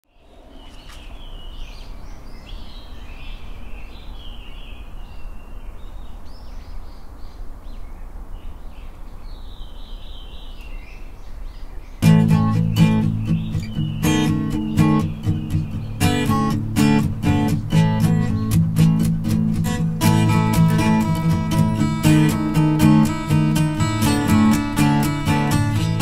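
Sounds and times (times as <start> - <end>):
small birds chirping: 0.0 - 26.0
acoustic guitar music: 12.0 - 26.0.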